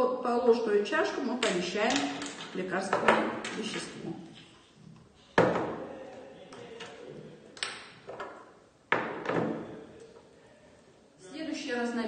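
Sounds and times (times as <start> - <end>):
balance knocking on table: 5.4 - 5.8, 8.1 - 9.6.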